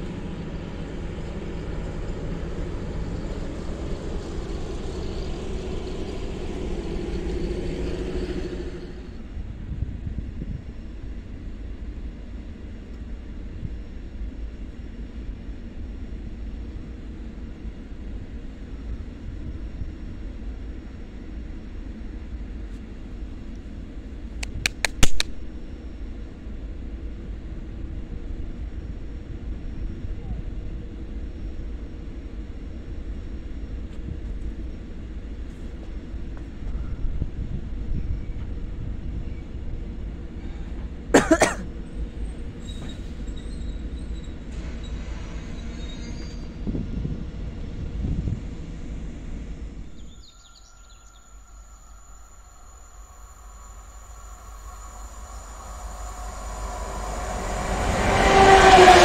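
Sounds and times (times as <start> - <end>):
distant diesel locomotive rumble: 0.0 - 59.0
sharp clicks: 24.4 - 25.5.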